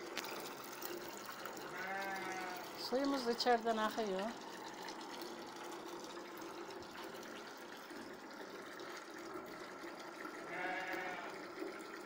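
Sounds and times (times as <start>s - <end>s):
water pouring from pipe: 0.0s - 12.0s
sheep bleating: 1.7s - 2.7s, 10.5s - 11.4s.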